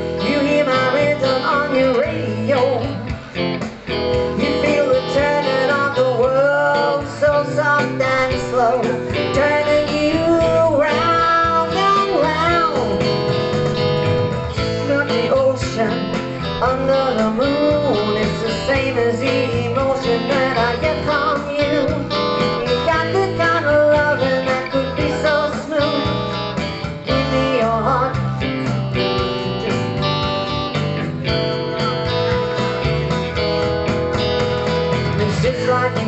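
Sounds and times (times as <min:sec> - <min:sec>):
electric guitar through amplifier: 0:00.0 - 0:36.0
woman singing: 0:00.1 - 0:03.4, 0:04.2 - 0:13.8, 0:14.5 - 0:28.8, 0:35.0 - 0:36.0.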